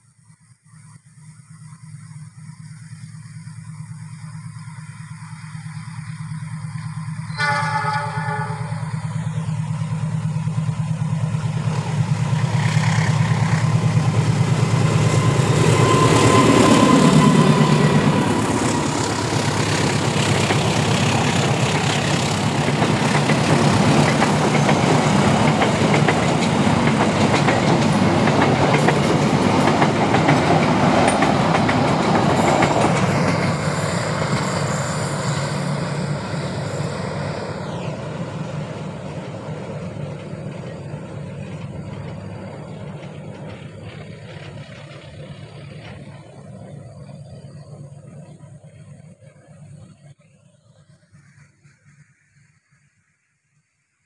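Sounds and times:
train engine drone passing: 0:00.0 - 0:54.0
locomotive horn: 0:07.3 - 0:09.3
coaches rolling on track: 0:08.4 - 0:50.1.

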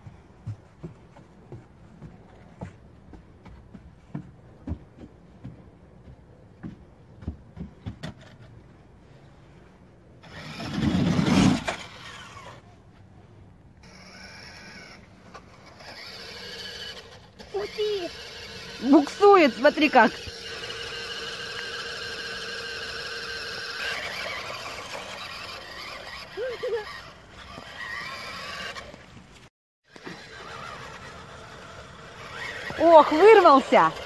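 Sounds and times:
child's steps on wooden ramp: 0:00.0 - 0:08.7
toy truck electric motor whirring: 0:10.2 - 0:12.6, 0:13.8 - 0:29.1, 0:29.9 - 0:34.0.

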